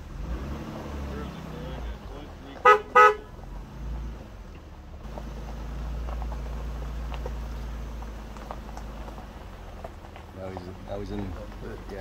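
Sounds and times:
vehicle engine rumble: 0:00.0 - 0:12.0
vehicle horn toot: 0:02.6 - 0:03.3.

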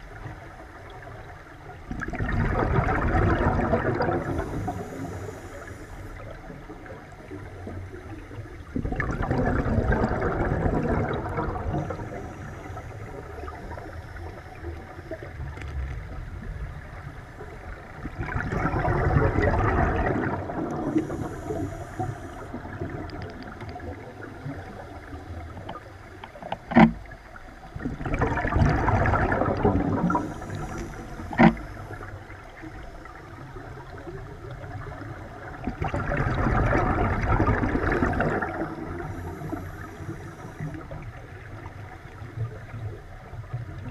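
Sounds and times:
exhaled bubbles underwater: 0:00.0 - 0:43.9
regulator hiss: 0:04.3 - 0:06.4, 0:20.9 - 0:22.7, 0:30.1 - 0:32.1.

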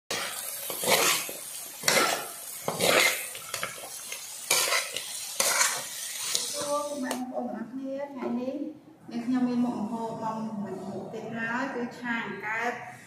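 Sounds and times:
spatula scraping a wok: 0:00.1 - 0:07.1
frying sizzle: 0:00.1 - 0:07.2.

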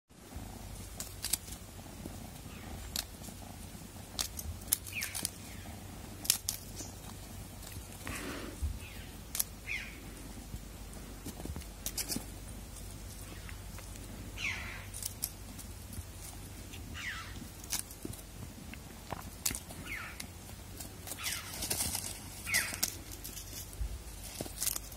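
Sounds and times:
steady low rumble: 0:00.2 - 0:24.9
sharp clicks and ticks: 0:04.1 - 0:05.5.

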